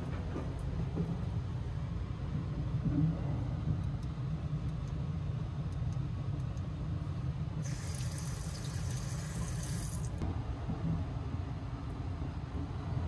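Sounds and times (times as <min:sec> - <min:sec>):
train low rumble: 0:00.0 - 0:13.0
tap running water into basin: 0:07.6 - 0:10.2.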